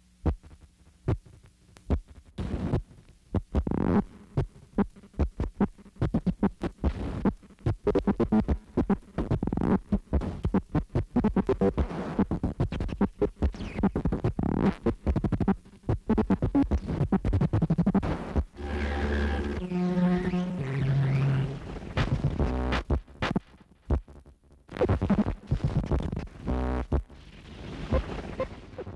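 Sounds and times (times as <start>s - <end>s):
low buzzing throbs: 18.5s - 22.9s.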